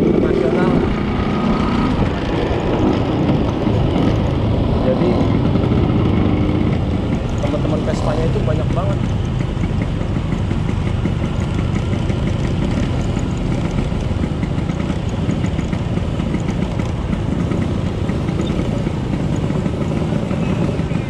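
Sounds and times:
scooter engine running: 0:00.0 - 0:21.0.

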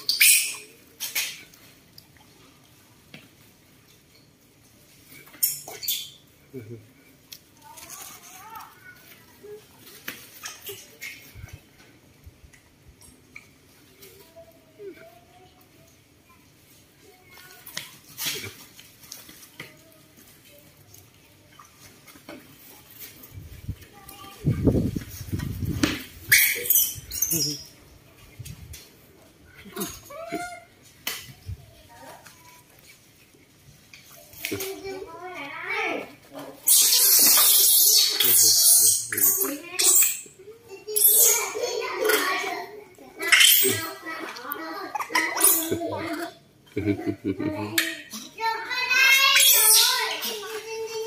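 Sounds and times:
baby monkeys squeaking: 0:00.0 - 0:00.8, 0:05.4 - 0:06.2, 0:26.3 - 0:27.7, 0:36.6 - 0:41.6, 0:43.2 - 0:44.0, 0:44.9 - 0:45.8, 0:49.1 - 0:50.4.

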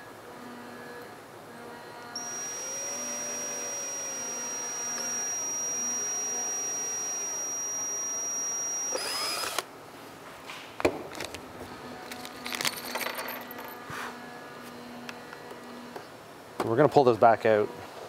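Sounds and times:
electric drill whining: 0:02.2 - 0:09.6.

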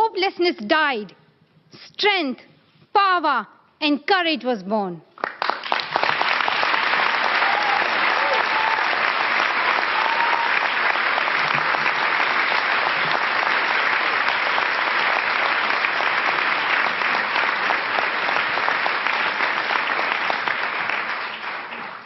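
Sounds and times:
large audience applauding: 0:05.2 - 0:22.0.

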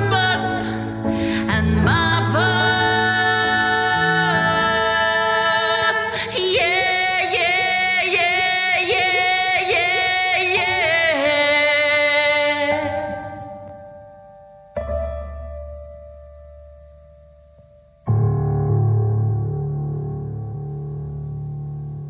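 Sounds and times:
woman singing: 0:00.0 - 0:13.6.

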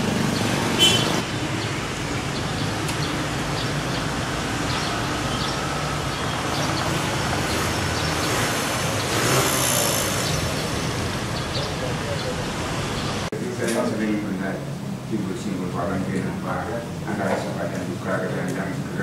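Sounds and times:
vehicle passing: 0:00.0 - 0:13.3
street traffic noise: 0:00.0 - 0:19.0.

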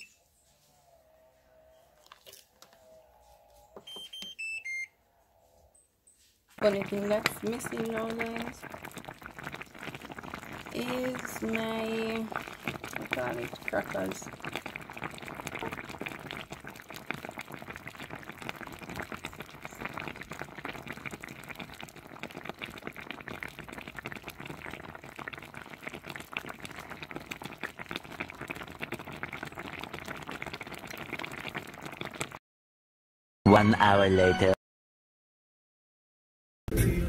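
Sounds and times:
sauce bubbling in a pan: 0:06.6 - 0:32.4.

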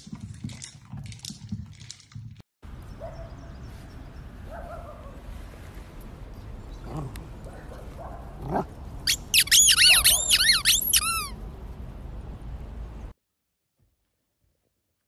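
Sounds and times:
squeaky toy squeaking: 0:09.1 - 0:11.4.

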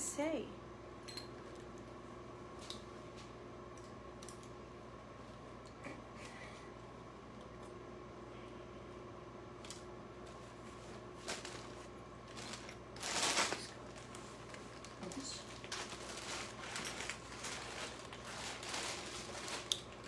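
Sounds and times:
rustling of handling: 0:10.3 - 0:20.0.

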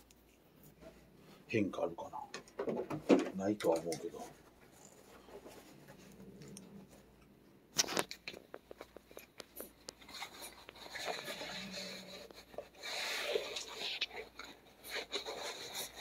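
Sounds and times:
soft rubbing: 0:04.0 - 0:07.6, 0:08.6 - 0:16.0.

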